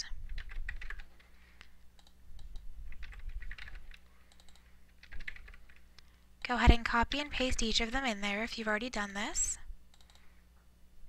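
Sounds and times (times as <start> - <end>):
computer keyboard keystrokes: 0.3 - 1.3, 2.0 - 5.8, 9.9 - 10.2.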